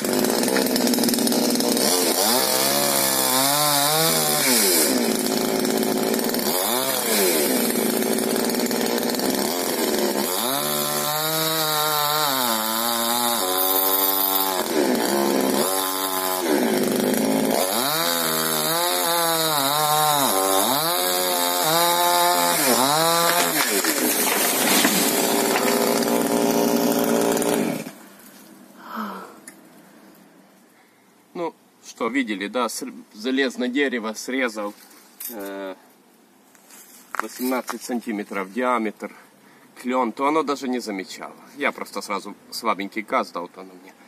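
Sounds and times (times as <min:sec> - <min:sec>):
chainsaw cutting log: 0:00.0 - 0:28.0.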